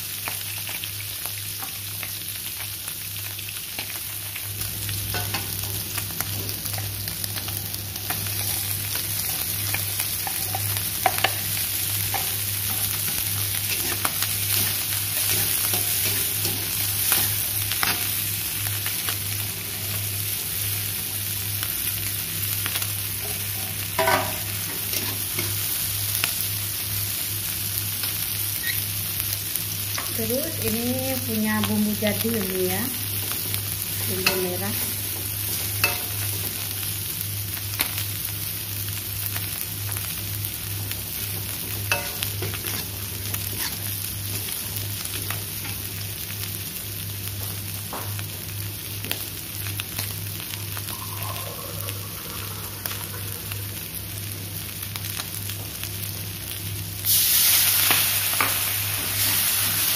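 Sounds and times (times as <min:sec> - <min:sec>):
food sizzling in hot oil: 0:00.0 - 0:59.9
metal spatula scraping a wok: 0:43.5 - 0:43.9
low hum: 0:50.8 - 0:54.4.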